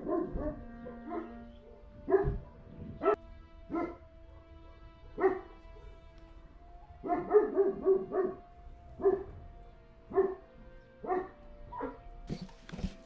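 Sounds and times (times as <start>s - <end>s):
dog barking: 0.0s - 6.0s, 6.9s - 9.3s, 10.1s - 12.1s.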